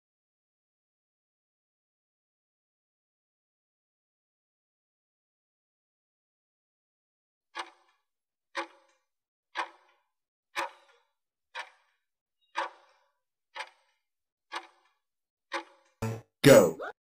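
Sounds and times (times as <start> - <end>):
timer ticking: 9.6 - 10.0, 10.6 - 12.0, 12.6 - 16.9.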